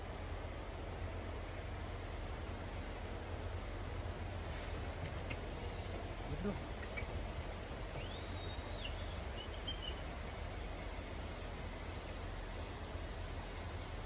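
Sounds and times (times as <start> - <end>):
low outdoor rumble: 0.0 - 14.0
faint bird call: 4.6 - 11.1.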